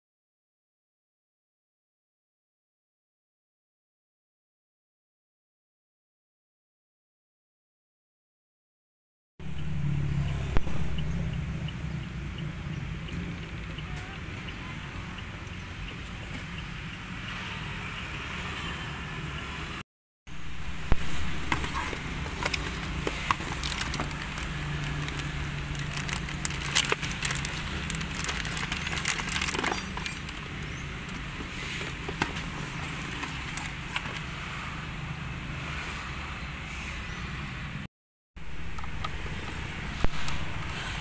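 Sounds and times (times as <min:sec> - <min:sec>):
plastic bag crinkling: 0:23.3 - 0:30.4.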